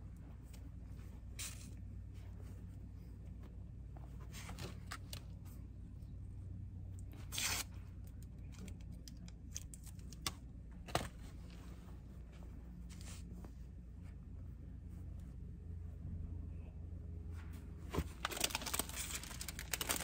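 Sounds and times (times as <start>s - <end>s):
steady low hum: 0.0s - 20.0s
fabric and packaging rustling: 0.1s - 5.8s, 10.8s - 15.4s, 17.2s - 20.0s.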